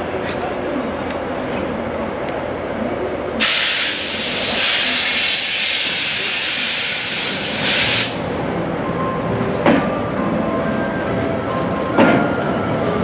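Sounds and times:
steam hissing from locomotive: 3.4 - 8.3.

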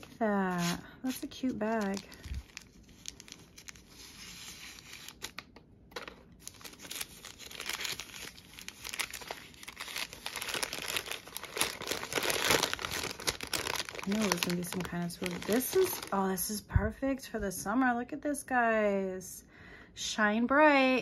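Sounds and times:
packaging crinkling and tearing: 0.0 - 16.3.

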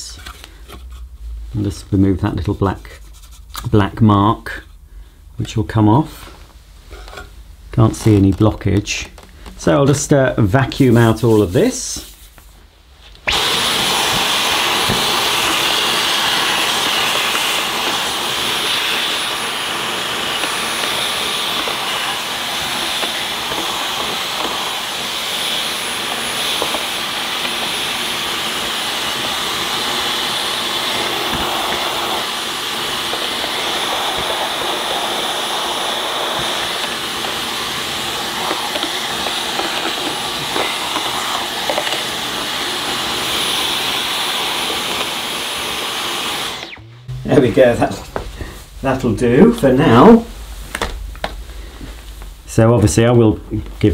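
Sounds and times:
stick vacuum whining: 13.1 - 52.4.

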